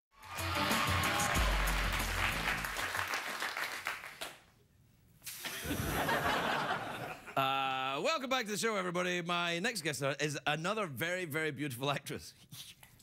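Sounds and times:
audience applauding: 0:00.2 - 0:04.5.

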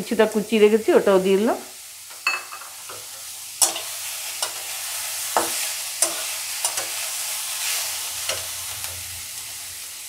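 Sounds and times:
vegetables sizzling in oil: 0:00.0 - 0:10.0
metal spatula scraping a pan: 0:02.1 - 0:09.2.

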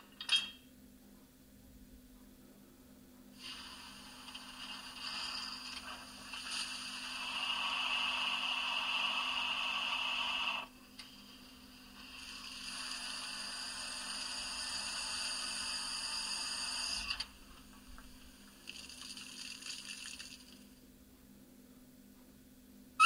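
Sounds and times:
faint steady hum: 0:00.0 - 0:23.0
model locomotive injector hiss: 0:03.4 - 0:10.7, 0:12.0 - 0:17.2.

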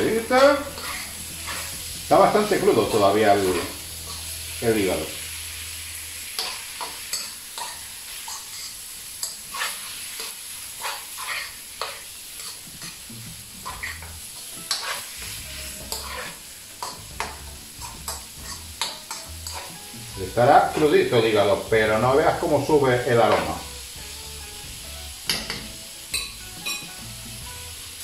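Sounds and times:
metal spoon scraping a pan: 0:00.0 - 0:04.6, 0:06.3 - 0:19.9
food sizzling in a frying pan: 0:00.0 - 0:28.0.

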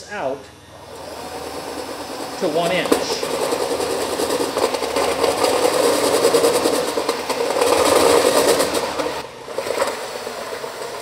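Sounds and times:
drill cutting sheet metal: 0:00.8 - 0:11.0.

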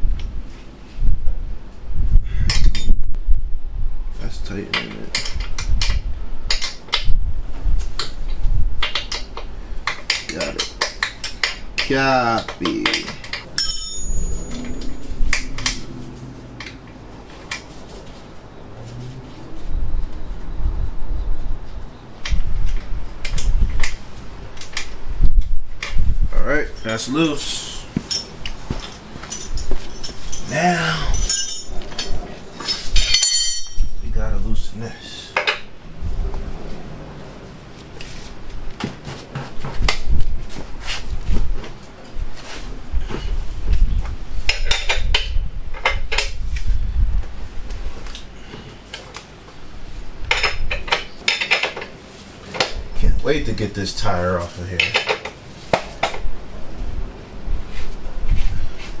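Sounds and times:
wrench clanging on concrete: 0:09.9 - 0:16.0, 0:28.0 - 0:34.0.

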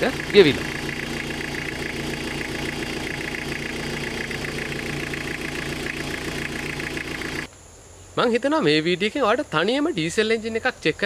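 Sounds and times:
diesel engine idling: 0:00.0 - 0:07.5
engine ticking clatter: 0:00.0 - 0:07.5.

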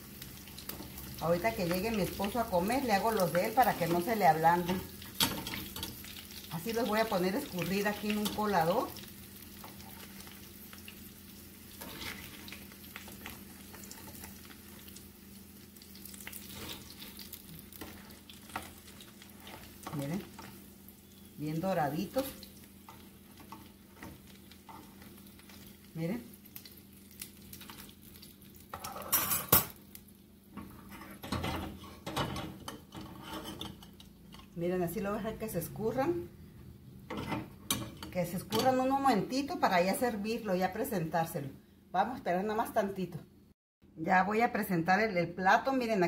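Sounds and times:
food sizzling in hot oil: 0:00.0 - 0:34.0.

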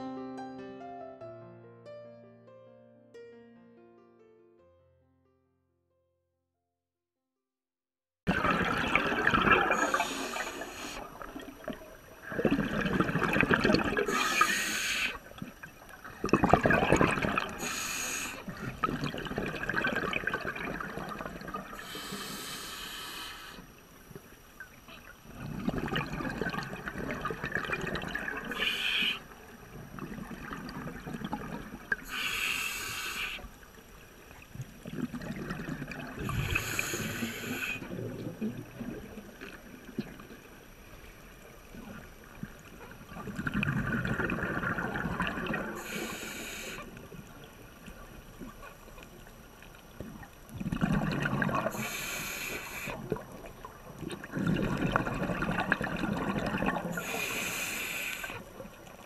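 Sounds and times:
diver exhaling bubbles: 0:08.3 - 0:22.5, 0:25.3 - 0:32.2, 0:34.6 - 0:40.3, 0:43.0 - 0:46.8, 0:50.5 - 0:58.5
regulator hiss: 0:09.7 - 0:11.4, 0:14.0 - 0:15.3, 0:17.5 - 0:18.6, 0:21.8 - 0:24.4, 0:28.5 - 0:29.6, 0:31.9 - 0:33.7, 0:36.2 - 0:37.9, 0:45.8 - 0:47.0, 0:51.7 - 0:53.1, 0:57.0 - 0:58.4.

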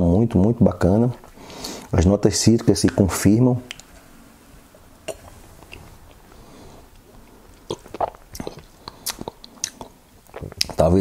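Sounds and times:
lip smacks: 0:05.1 - 0:06.2, 0:06.9 - 0:10.8
tongue clicks: 0:07.7 - 0:10.0.

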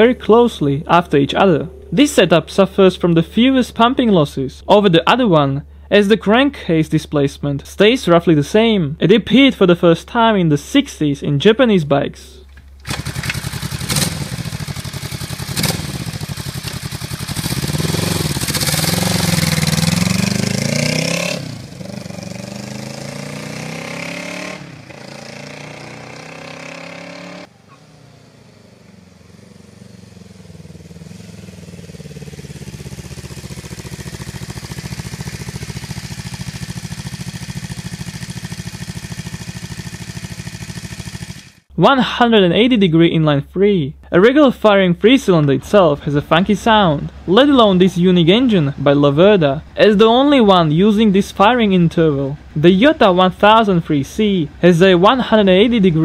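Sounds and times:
motorcycle engine revving: 0:00.0 - 0:03.8, 0:12.8 - 0:41.7.

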